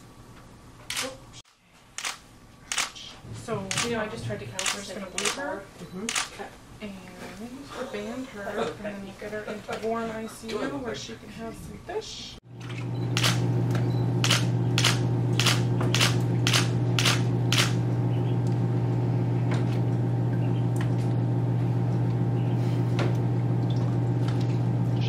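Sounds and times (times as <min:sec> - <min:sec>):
air blower humming: 0:12.8 - 0:23.5.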